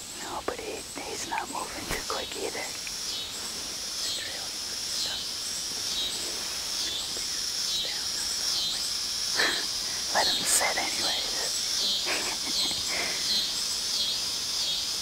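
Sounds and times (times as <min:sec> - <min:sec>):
cicadas buzzing: 0:00.0 - 0:15.0
person whispering: 0:00.1 - 0:02.8, 0:04.0 - 0:05.3, 0:06.4 - 0:11.7.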